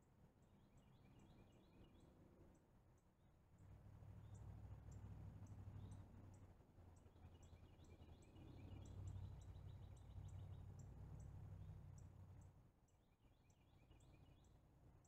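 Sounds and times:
small birds chirping: 4.2 - 14.6.

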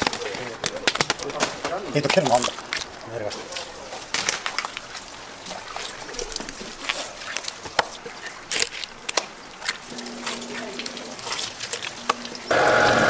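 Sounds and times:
low hum: 9.9 - 13.0.

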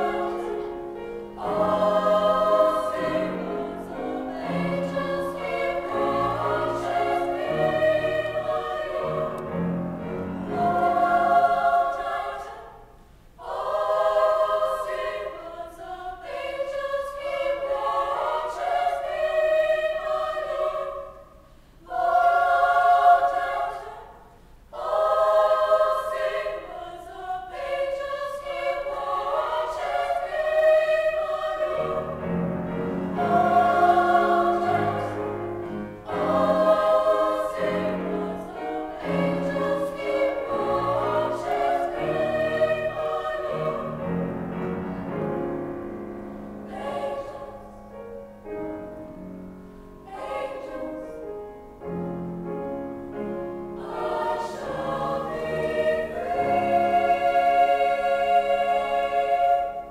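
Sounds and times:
piano accompaniment: 0.0 - 12.2, 31.7 - 59.9
women's choir singing: 0.0 - 48.6, 50.0 - 51.3, 53.2 - 59.9.

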